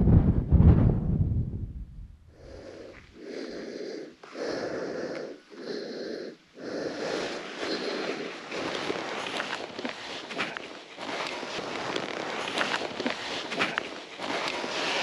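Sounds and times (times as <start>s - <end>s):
loud low rumble on microphone: 0.0s - 3.0s
person breathing hard: 2.3s - 15.0s.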